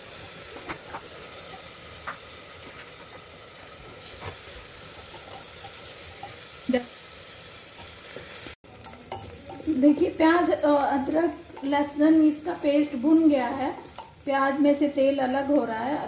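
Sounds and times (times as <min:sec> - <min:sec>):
onions sizzling in oil: 0:00.0 - 0:16.0
spatula scraping and knocking pot: 0:00.4 - 0:03.3, 0:04.0 - 0:06.6.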